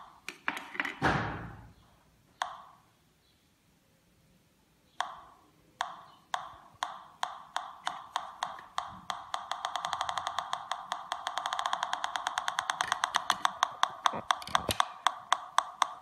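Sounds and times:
metal detector clicking: 6.8 - 16.0.

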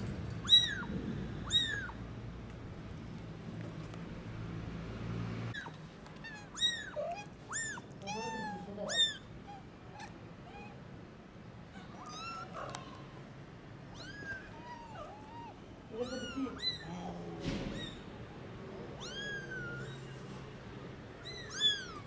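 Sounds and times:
low steady hum: 0.0 - 6.2
kittens mewing: 0.4 - 2.0, 5.5 - 11.0, 11.6 - 13.2, 13.8 - 22.0.

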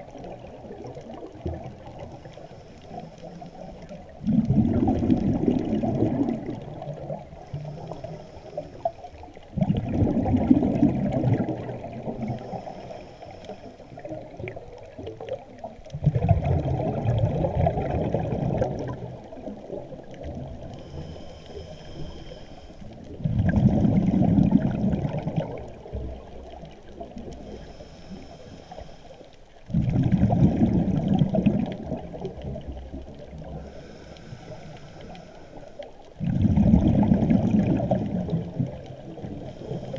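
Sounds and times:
exhaled bubbles gurgling underwater: 0.0 - 39.9
regulator inhalation hiss: 2.2 - 3.8, 7.6 - 9.4, 12.3 - 14.0, 20.7 - 22.9, 27.4 - 29.3, 33.6 - 35.9.

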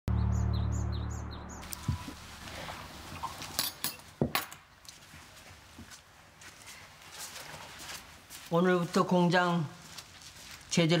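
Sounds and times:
birds chirping: 0.1 - 4.0.

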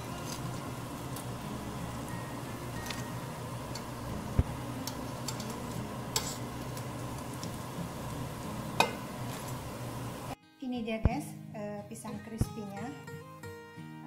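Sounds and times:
fritters sizzling in hot oil: 0.0 - 10.4
metal tongs clicking on pan: 3.7 - 4.0, 4.8 - 7.6, 8.8 - 9.0.

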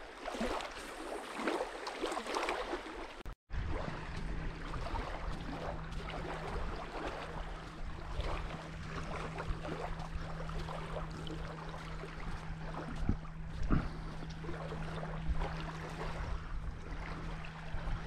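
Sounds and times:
steady low hum: 3.6 - 18.0.

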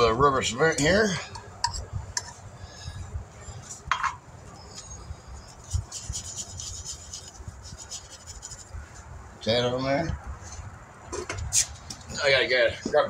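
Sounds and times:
faint scratching: 4.6 - 9.1.

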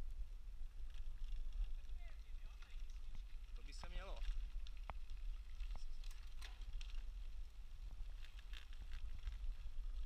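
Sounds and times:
wind rumble on microphone: 0.0 - 10.0.

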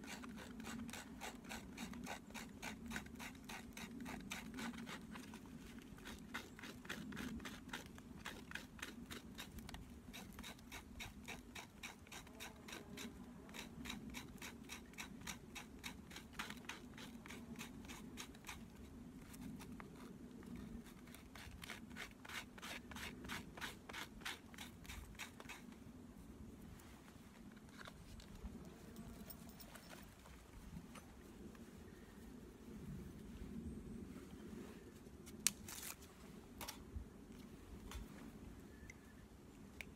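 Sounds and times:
knife blade scraping wood: 0.0 - 25.8, 35.3 - 36.8.

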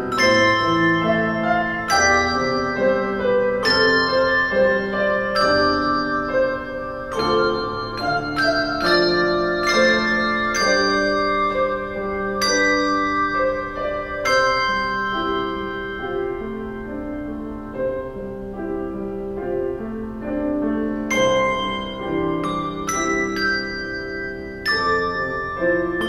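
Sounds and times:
handbells ringing chords: 0.0 - 18.0, 20.9 - 26.0.

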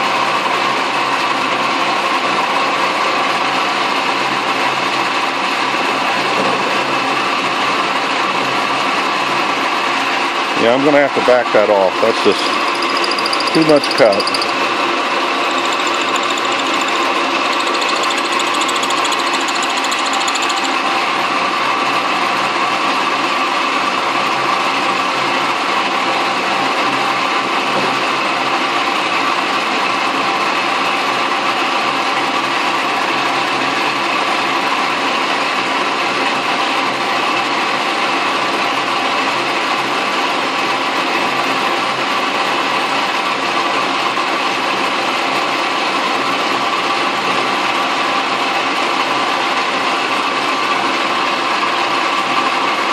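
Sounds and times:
metal lathe running: 11.4 - 22.8
thin high whine: 11.9 - 20.9.

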